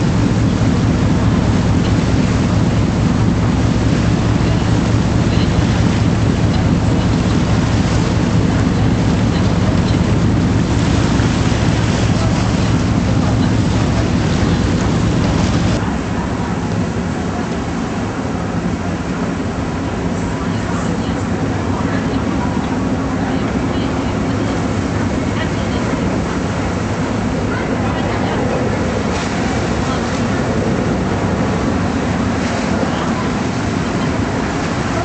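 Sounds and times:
wind noise: 0.0 - 16.0
boat engine droning: 0.0 - 35.0
water: 0.0 - 35.0.

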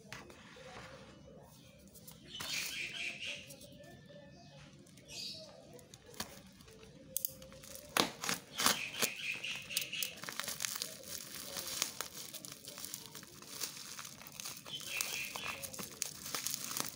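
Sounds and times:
plastic wrapping crinkling and tearing: 5.7 - 16.9.

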